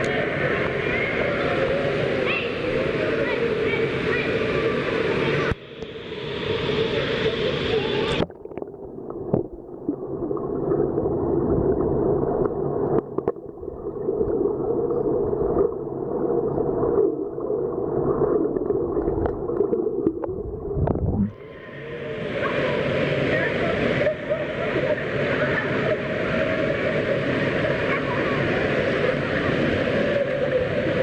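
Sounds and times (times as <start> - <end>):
indoor pool din: 0.0 - 31.0
underwater churning: 8.0 - 29.5
small underwater clicks and knocks: 8.2 - 9.7, 12.4 - 13.5, 18.6 - 21.3.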